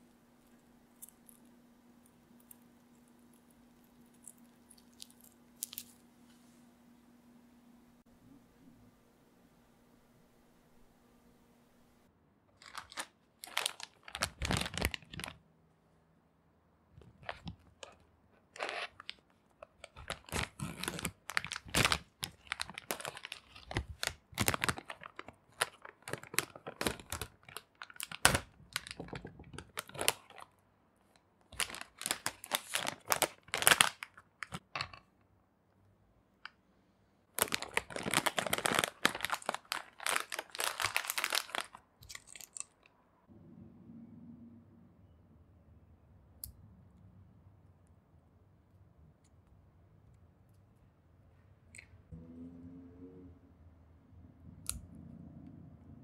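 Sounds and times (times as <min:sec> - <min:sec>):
plastic packet crinkling: 0:02.5 - 0:06.1, 0:12.6 - 0:15.4, 0:17.0 - 0:30.5, 0:31.5 - 0:35.0, 0:37.4 - 0:42.8.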